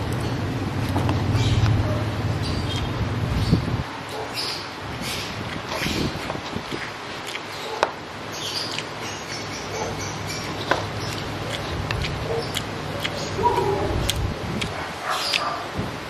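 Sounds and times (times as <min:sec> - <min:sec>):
person chewing: 0:02.6 - 0:07.8, 0:08.4 - 0:15.7.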